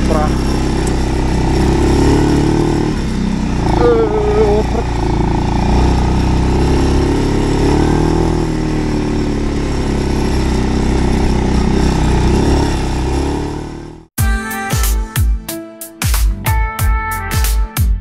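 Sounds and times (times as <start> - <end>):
atv engine running: 0.0 - 14.2.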